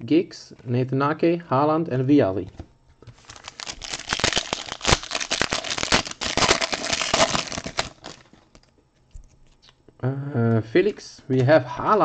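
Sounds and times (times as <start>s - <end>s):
foil pack tearing and crinkling: 3.2s - 8.6s.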